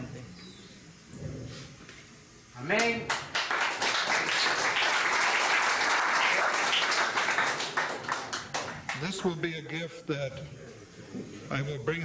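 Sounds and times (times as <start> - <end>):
crowd applauding: 2.8 - 9.5.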